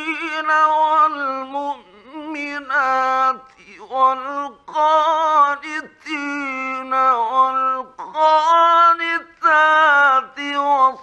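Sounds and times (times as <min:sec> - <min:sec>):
man chanting melodically: 0:00.0 - 0:11.0.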